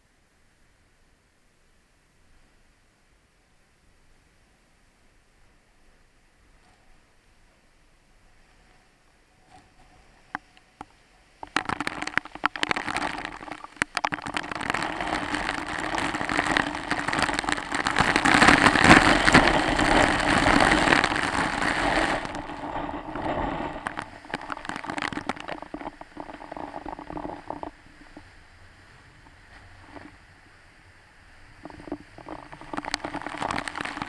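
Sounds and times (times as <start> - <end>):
waterfall spray pelting camera: 11.4 - 28.4, 31.6 - 34.0.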